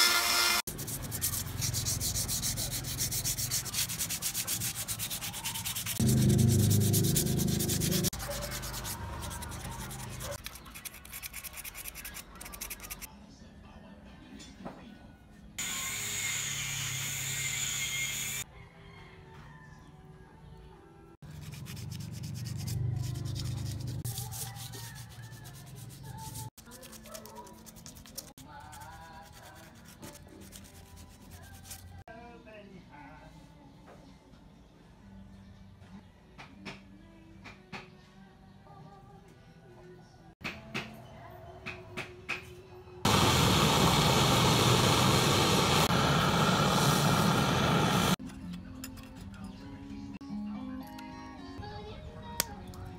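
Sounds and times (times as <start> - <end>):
hand sanding cement: 0.7 - 13.0, 21.4 - 32.0
gas torch flame burning: 43.1 - 48.2.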